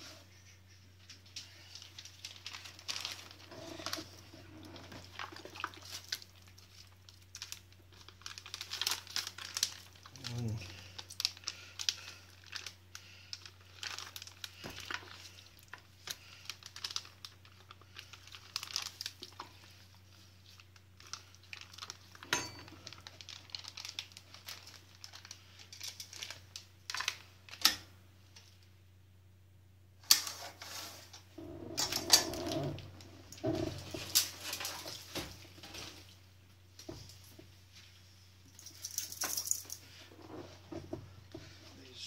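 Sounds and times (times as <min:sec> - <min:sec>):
plastic bag crinkling: 0:01.5 - 0:27.6, 0:30.6 - 0:36.2.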